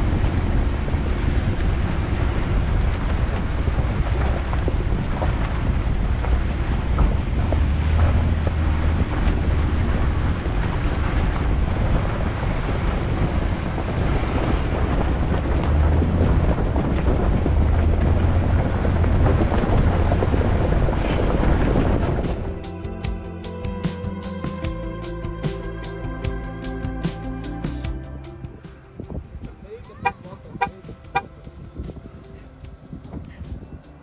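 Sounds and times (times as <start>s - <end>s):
tyres rolling over rock and gravel: 0.0s - 22.3s
wind buffeting microphone: 0.0s - 22.8s, 28.5s - 34.0s.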